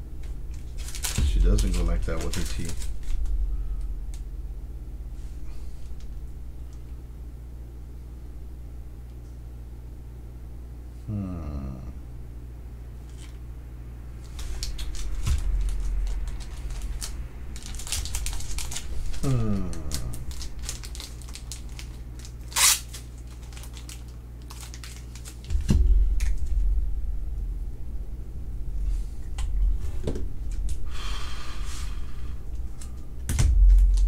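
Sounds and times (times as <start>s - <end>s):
trading cards rustling: 0.2s - 3.4s, 13.0s - 13.4s, 14.2s - 26.4s
dull thumps: 25.5s - 26.8s.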